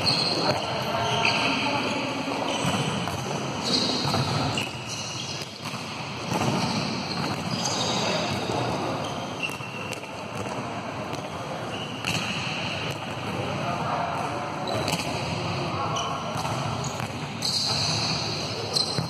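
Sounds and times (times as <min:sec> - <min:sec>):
sneakers squeaking on floor: 0:00.0 - 0:13.3, 0:14.2 - 0:19.0
ball bouncing on court: 0:00.0 - 0:19.0
volleyball being struck: 0:02.6 - 0:04.6.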